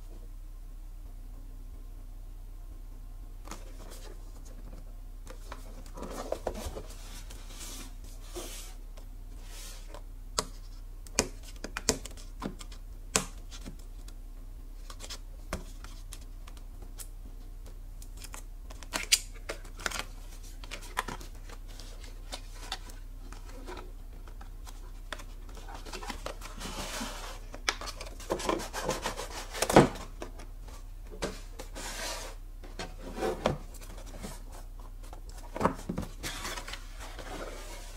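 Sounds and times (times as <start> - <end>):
cardboard sliding and rubbing: 5.4 - 8.8, 24.7 - 37.9.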